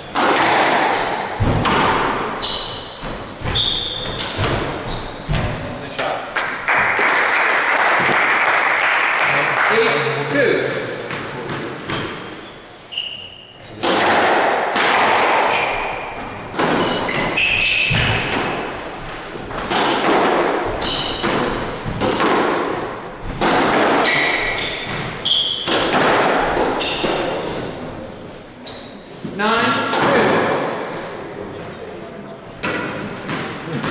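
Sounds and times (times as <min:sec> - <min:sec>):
squash ball hit by rackets: 0:00.1 - 0:05.6, 0:13.8 - 0:18.9, 0:19.5 - 0:27.7, 0:29.9 - 0:30.7, 0:32.6 - 0:33.9
shoes squeaking on hardwood floor: 0:02.2 - 0:05.6, 0:11.1 - 0:13.7, 0:15.5 - 0:19.7, 0:20.6 - 0:22.1, 0:24.0 - 0:27.9, 0:28.6 - 0:29.4.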